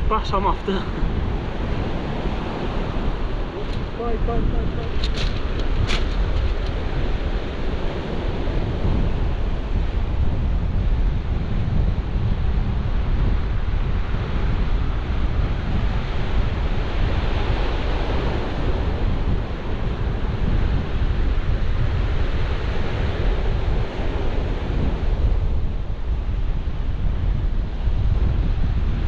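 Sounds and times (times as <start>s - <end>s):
wind buffeting microphone: 0.0s - 29.0s
surf breaking on shingle beach: 0.7s - 10.0s.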